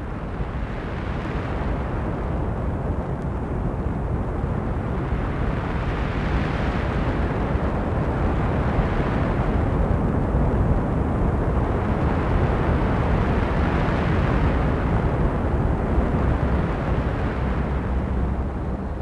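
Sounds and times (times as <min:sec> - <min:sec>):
wind rumble: 0:00.0 - 0:19.0.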